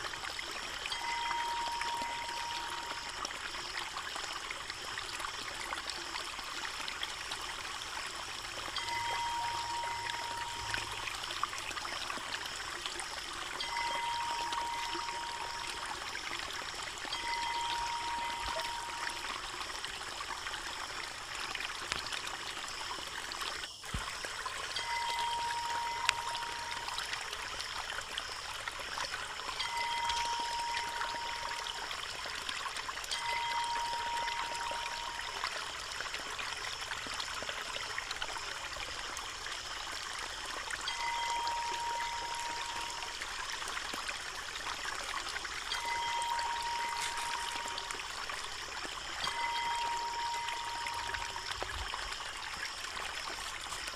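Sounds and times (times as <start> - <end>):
steady high note: 0.9 - 3.1, 8.7 - 11.2, 13.6 - 15.9, 17.1 - 19.4, 24.8 - 27.1, 29.6 - 31.8, 40.9 - 43.2, 45.7 - 48.0, 49.2 - 51.6.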